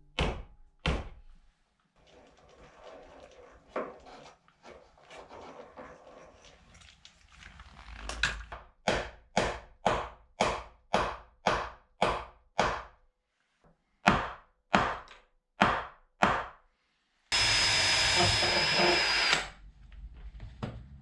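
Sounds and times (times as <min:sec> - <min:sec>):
cordless drill whining: 0:17.3 - 0:19.5.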